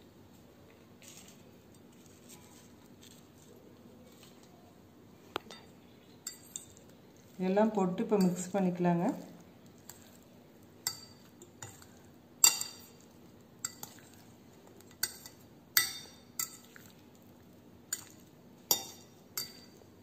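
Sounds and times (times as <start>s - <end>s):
soft stirring of vegetables: 0.0s - 20.0s
fork clinking on ceramic bowl: 5.5s - 6.8s, 10.8s - 14.2s, 14.8s - 16.8s, 17.9s - 19.8s.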